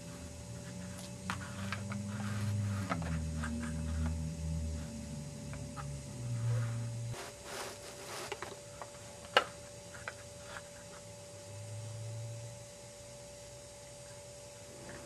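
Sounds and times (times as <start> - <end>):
low hum: 0.0 - 7.8
toy rustling against paper: 0.6 - 4.1, 7.2 - 8.6.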